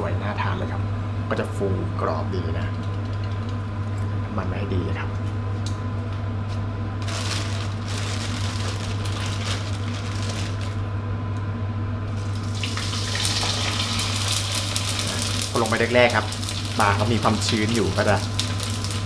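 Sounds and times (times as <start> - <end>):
fish sizzling in oil: 12.1 - 19.0
hot oil in a wok: 12.1 - 19.0.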